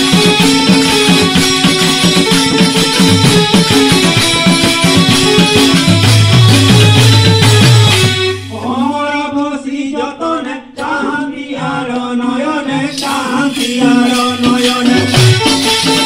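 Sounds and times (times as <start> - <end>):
harmonium drone: 0.0 - 8.5
percussion: 0.0 - 9.3, 10.7 - 16.0
men singing devotional song: 8.5 - 16.0.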